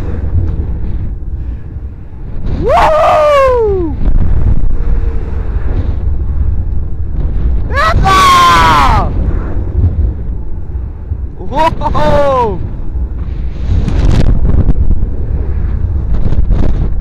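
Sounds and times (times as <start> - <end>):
low rumble: 0.0 - 17.0
wind rushing over microphone: 0.0 - 17.0
riders screaming: 2.6 - 4.0, 7.7 - 9.2, 11.4 - 12.6.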